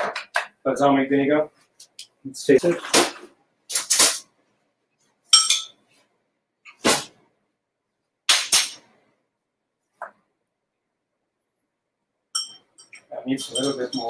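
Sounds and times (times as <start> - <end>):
metal spoon clinking glass bowl: 5.3 - 5.8, 12.3 - 14.0.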